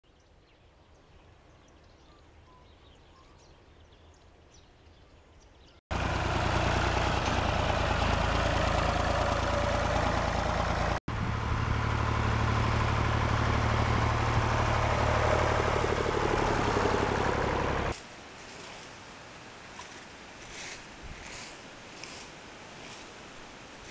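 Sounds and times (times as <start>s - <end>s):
harvester small engine: 5.9s - 18.0s
tractor engine running: 5.9s - 18.0s.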